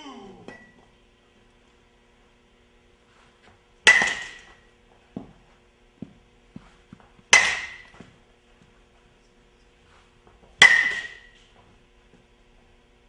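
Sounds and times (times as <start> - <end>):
baseball bat hitting ball: 3.8 - 4.7, 7.3 - 8.1, 10.6 - 11.6.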